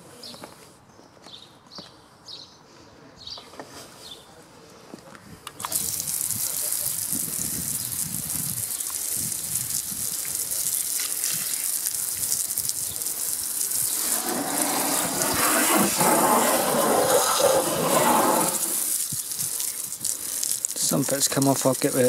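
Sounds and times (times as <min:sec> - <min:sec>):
hose water spraying on wheel: 0:05.6 - 0:22.0.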